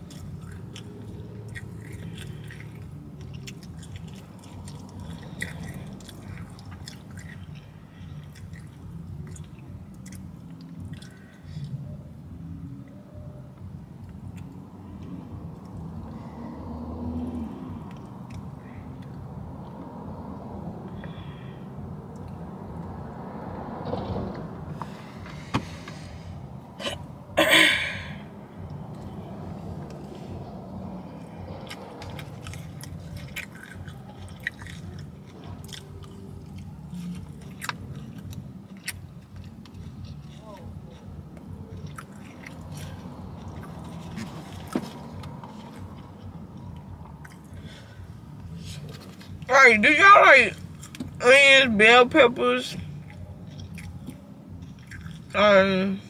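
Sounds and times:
chewing: 0.0 - 11.9, 14.0 - 19.8, 28.7 - 49.5, 50.6 - 51.2, 52.8 - 55.4
person's throat noise: 26.8 - 28.2.

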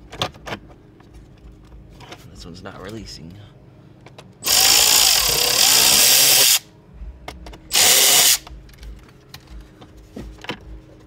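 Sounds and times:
cordless power ratchet running: 4.4 - 6.6, 7.7 - 8.5.

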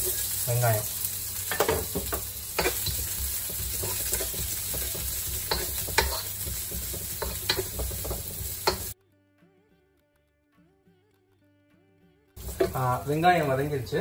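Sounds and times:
onions sizzling in oil: 0.0 - 9.0, 12.4 - 14.0
wooden spatula scraping pan: 1.6 - 8.9.

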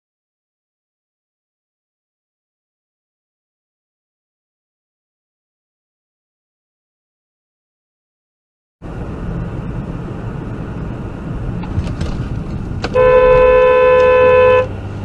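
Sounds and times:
car road and engine noise: 8.8 - 15.0
car horn blast: 12.9 - 14.8.

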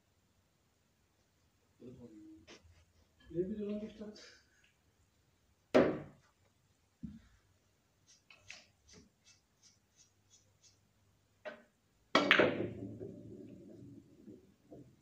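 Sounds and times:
billiard balls clacking: 11.5 - 15.0
balls rolling on cloth: 12.5 - 15.0.

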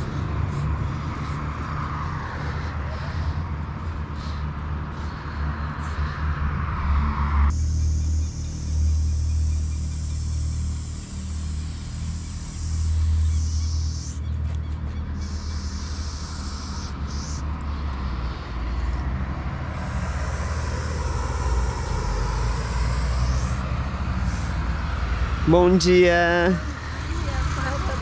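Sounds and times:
steady low rumble: 0.0 - 28.0
spray paint can hissing: 7.5 - 14.2, 15.2 - 17.4, 19.7 - 24.7.

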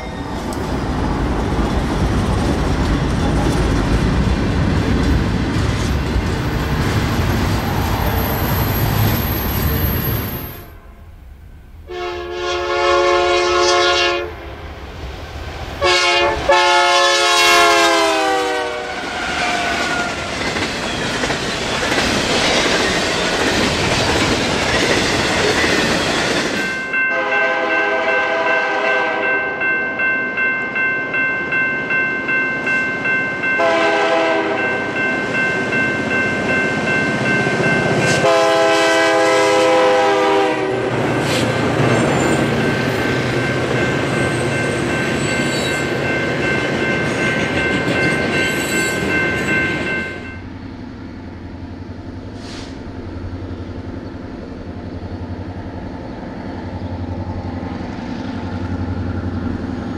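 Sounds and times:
train rumbling and clattering by: 0.0 - 59.9
locomotive air horn blasts: 11.9 - 14.4, 15.8 - 19.7, 27.1 - 29.4, 33.6 - 34.7, 38.1 - 41.0
steady high ringing tone: 41.1 - 51.7.

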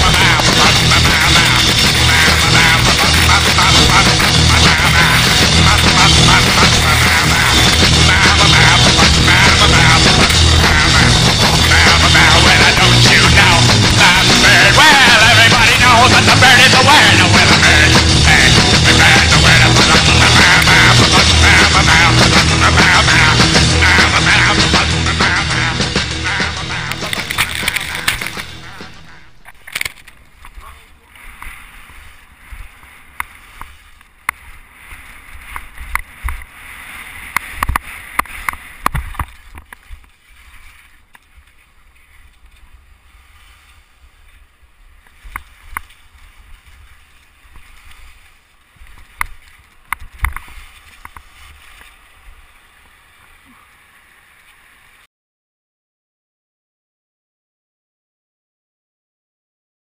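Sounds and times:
backing song: 0.0 - 32.7
wind rumbling on microphone: 26.3 - 55.0
skis scraping over snow: 27.2 - 55.1.

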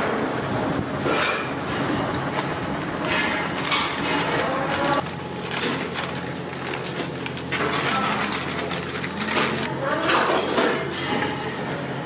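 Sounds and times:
hands mixing fish squishing: 2.3 - 9.7
flour shaken from plastic packet: 4.3 - 9.7.

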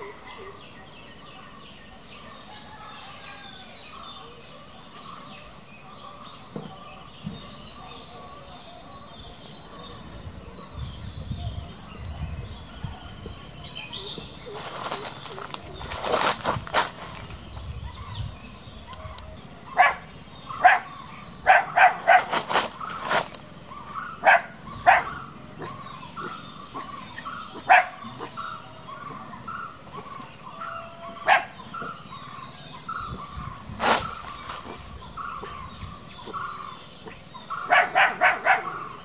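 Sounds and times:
insect buzz: 0.0 - 39.0
puppies barking: 19.7 - 22.4, 23.8 - 29.3, 30.0 - 32.0, 37.1 - 39.0.

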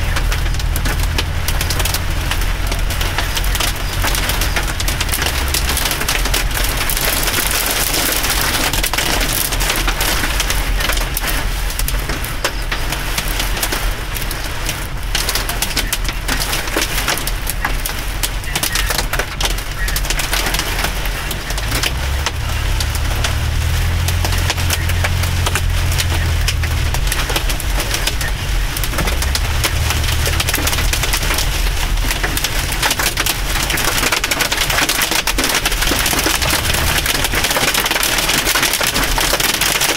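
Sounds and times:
hail and rain on car roof: 0.0 - 39.9.

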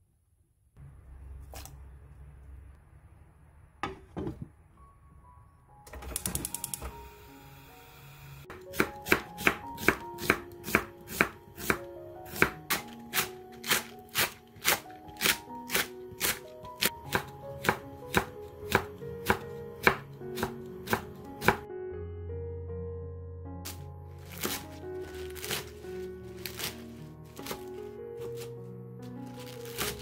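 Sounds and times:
knife chopping on wooden board: 8.5 - 21.6.

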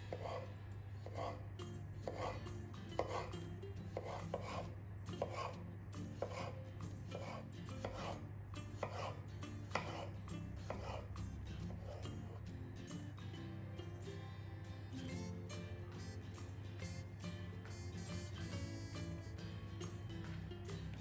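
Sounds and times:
knife cutting on a cutting board: 0.1 - 1.4, 2.0 - 2.4, 3.0 - 3.3, 3.9 - 5.6, 6.2 - 8.2, 8.8 - 11.1, 11.7 - 12.4.

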